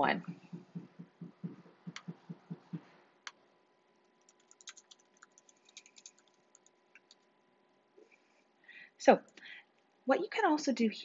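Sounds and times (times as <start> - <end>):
soft low thumps: 0.0 - 2.9
stylus tapping glass screen: 0.2 - 2.9.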